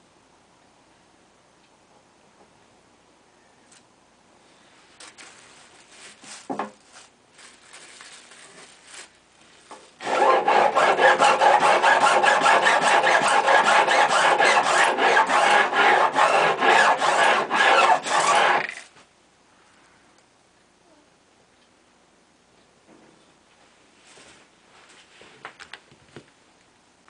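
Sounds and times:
file rasping on guitar frets: 10.0 - 18.6.

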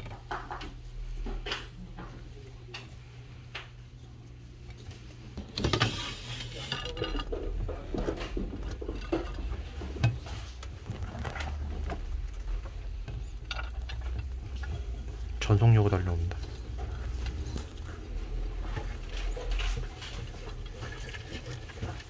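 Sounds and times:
tortoises crunching vegetables: 0.0 - 22.0.

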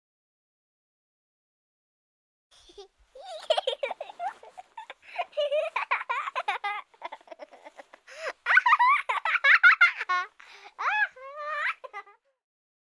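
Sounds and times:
young child giggling and babbling: 2.6 - 12.4.

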